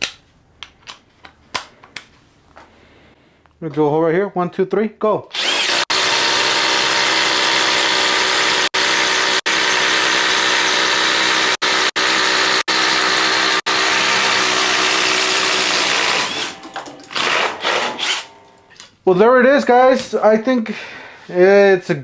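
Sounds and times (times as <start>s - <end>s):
impact driver boring through wood: 5.3s - 18.4s
drill bit scraping out of hole: 5.3s - 18.5s.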